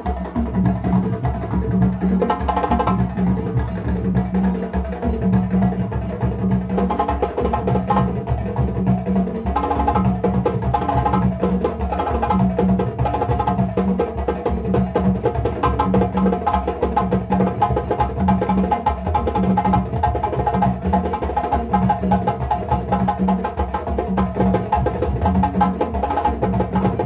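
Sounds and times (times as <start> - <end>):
hand-struck wooden percussion: 0.0 - 27.0.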